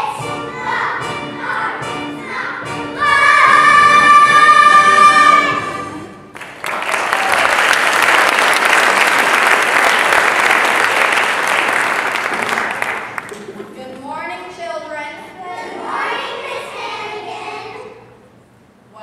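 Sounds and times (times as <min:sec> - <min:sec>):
girls' chorus singing: 0:00.0 - 0:06.2, 0:15.5 - 0:18.1
audience applause: 0:06.3 - 0:13.5.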